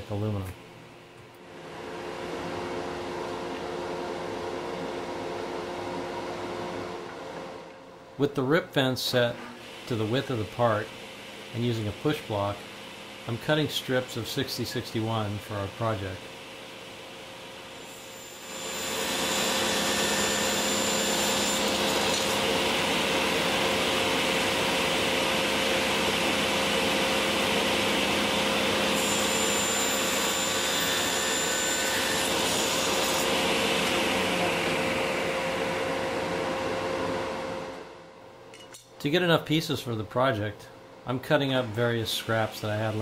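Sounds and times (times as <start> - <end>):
table saw motor hum: 9.3 - 38.0
saw blade cutting metal: 17.8 - 22.6, 28.9 - 34.2.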